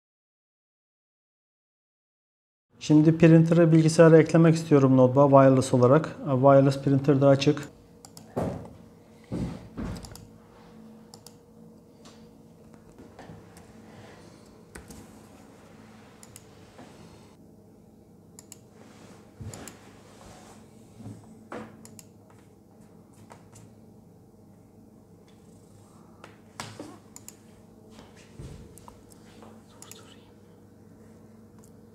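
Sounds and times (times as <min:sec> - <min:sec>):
faint steady hum: 0:02.8 - 0:31.9.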